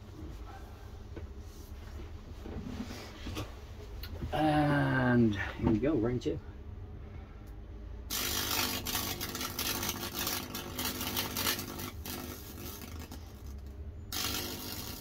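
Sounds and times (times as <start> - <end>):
electrical arc buzzing and crackling: 8.1 - 15.0.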